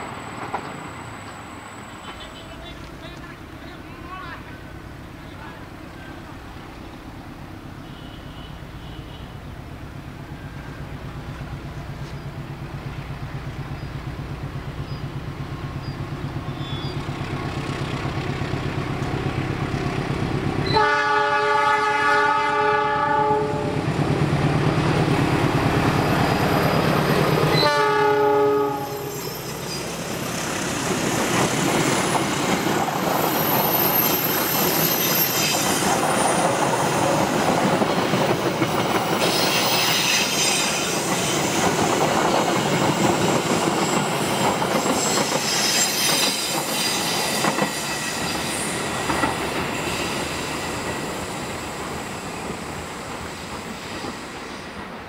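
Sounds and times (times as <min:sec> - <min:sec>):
diesel locomotive engine rumble: 0:00.0 - 0:55.0
train horn blasts: 0:20.6 - 0:23.8, 0:27.5 - 0:29.2.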